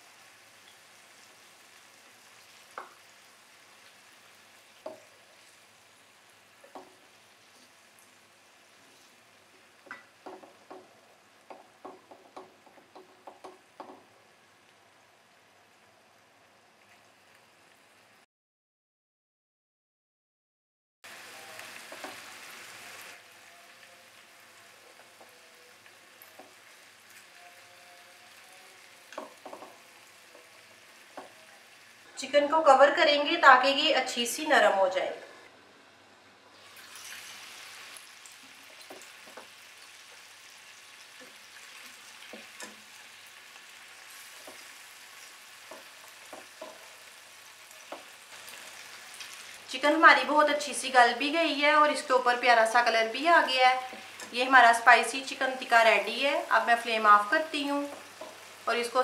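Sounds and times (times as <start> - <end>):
chicken sizzling in oil: 0.0 - 18.2, 21.0 - 32.1, 36.5 - 59.0
tongs knocking against pan: 9.9 - 10.9, 45.7 - 46.8.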